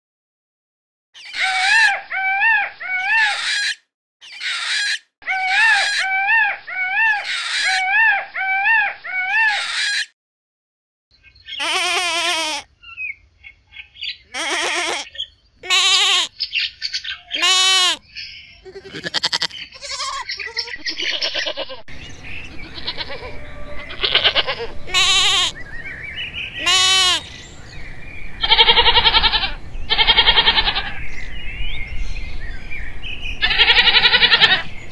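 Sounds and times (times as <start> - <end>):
peacock calling: 1.2 - 10.1, 11.5 - 12.7, 14.2 - 27.6, 28.4 - 31.1, 33.4 - 34.7
goats bleating: 11.6 - 12.7, 14.3 - 16.3, 17.3 - 18.0, 18.6 - 21.8, 22.6 - 25.6, 26.6 - 27.3, 28.4 - 31.0, 33.4 - 34.7.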